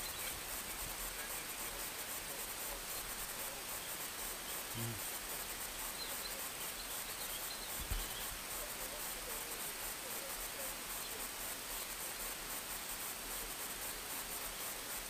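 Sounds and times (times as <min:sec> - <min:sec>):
faint bird chirps: 0:00.0 - 0:05.1, 0:05.7 - 0:12.0
steady hiss: 0:00.0 - 0:15.0.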